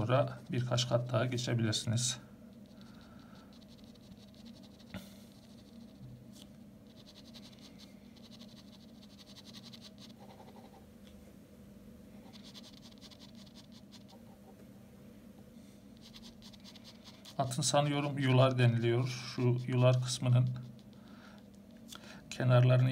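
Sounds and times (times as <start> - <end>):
faint steady hum: 0.0 - 22.9
pen scratching on paper: 2.6 - 6.0, 6.9 - 10.8, 12.2 - 14.4, 16.0 - 20.9.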